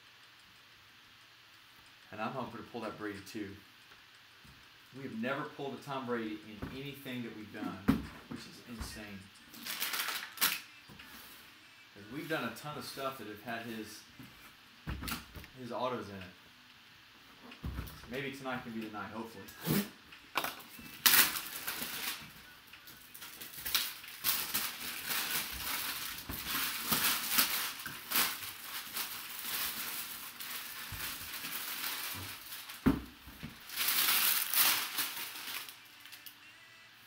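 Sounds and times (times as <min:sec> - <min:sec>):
wrapping crinkling: 0:08.9 - 0:11.2, 0:20.4 - 0:36.4.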